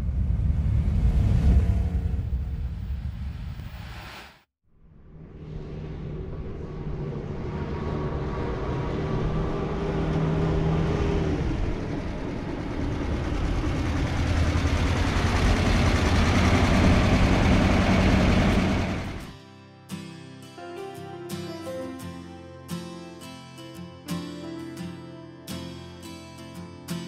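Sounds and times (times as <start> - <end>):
pickup truck engine running: 11.6 - 19.3.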